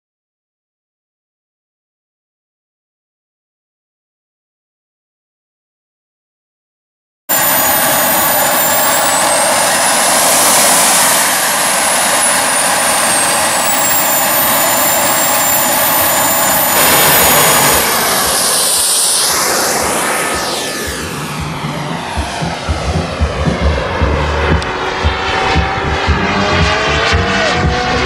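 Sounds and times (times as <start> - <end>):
exhaust rushing: 7.3 - 28.0
gas turbine whistle: 7.3 - 28.0.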